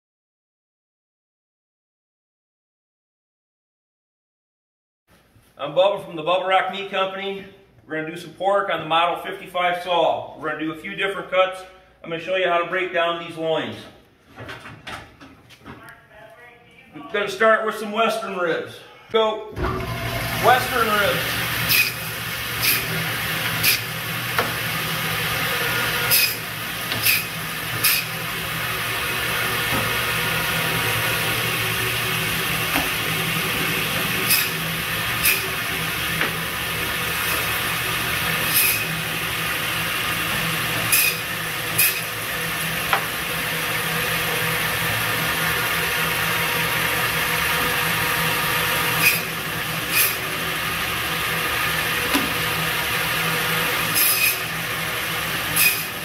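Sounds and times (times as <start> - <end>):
band saw cutting meat: 19.6 - 56.0.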